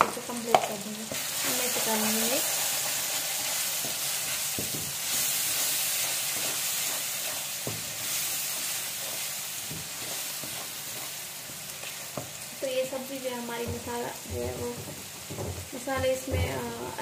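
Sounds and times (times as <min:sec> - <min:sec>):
masala sizzling in hot oil: 0:00.0 - 0:17.0
wooden spatula scraping pan: 0:00.6 - 0:12.4.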